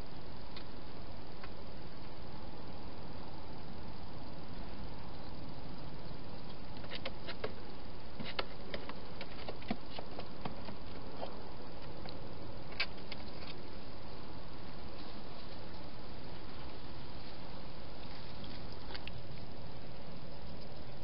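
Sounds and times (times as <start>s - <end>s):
microphone hiss: 0.0s - 21.0s
hedgehog clicks and rustles: 6.4s - 13.7s, 18.0s - 21.0s.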